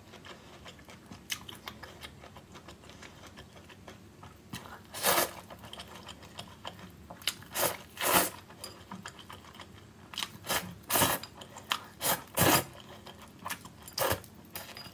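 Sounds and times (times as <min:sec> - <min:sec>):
noodle slurping: 0:04.9 - 0:05.5, 0:07.5 - 0:08.4.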